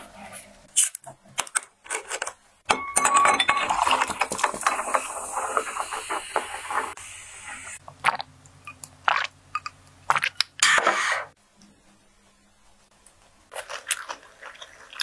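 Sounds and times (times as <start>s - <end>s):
ice cubes clinking in glass: 2.7s - 5.1s.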